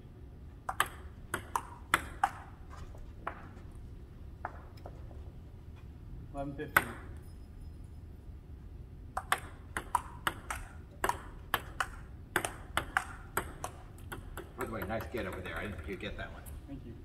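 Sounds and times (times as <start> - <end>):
table tennis ball clicks: 0.7 - 2.5, 9.2 - 16.0.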